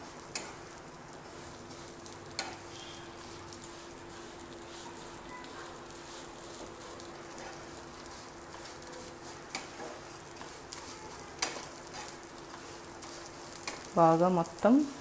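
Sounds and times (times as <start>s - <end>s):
vermicelli sizzling in pan: 0.0s - 15.0s
spatula clicking against pan: 0.3s - 0.6s, 2.3s - 2.6s, 9.5s - 9.8s, 11.4s - 12.1s.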